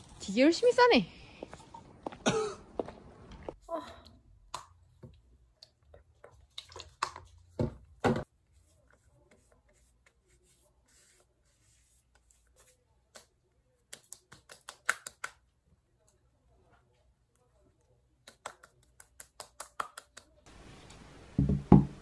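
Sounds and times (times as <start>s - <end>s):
bottle clicks and knocks: 21.4s - 22.0s.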